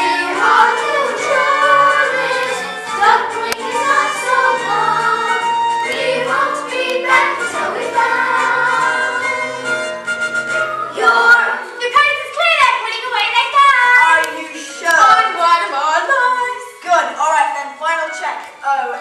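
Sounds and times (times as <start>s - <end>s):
children's chorus singing: 0.0s - 9.8s, 10.6s - 11.8s
instrumental accompaniment: 0.0s - 19.0s.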